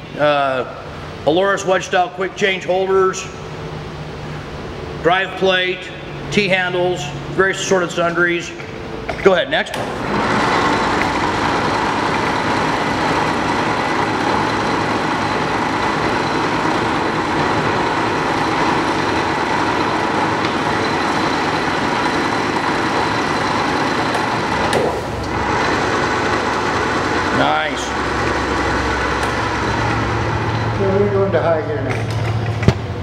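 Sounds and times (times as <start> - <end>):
lathe running: 9.8 - 31.7.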